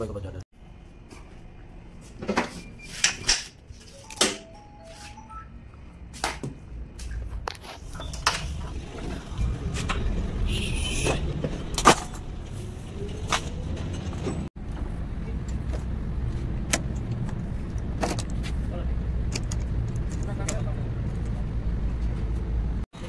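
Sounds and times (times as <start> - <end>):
low vehicle engine rumble: 6.7 - 22.8
handling knocks and clicks: 19.2 - 21.4.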